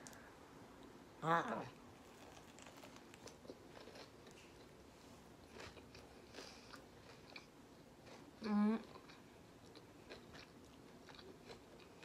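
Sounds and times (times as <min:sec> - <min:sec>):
chewing food: 0:01.8 - 0:04.8, 0:05.4 - 0:12.0
soft crunches: 0:01.8 - 0:06.7.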